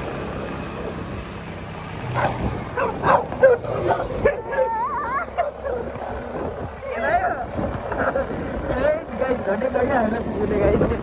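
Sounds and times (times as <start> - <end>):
dog whining: 2.2 - 5.9
dog yipping: 2.2 - 5.9.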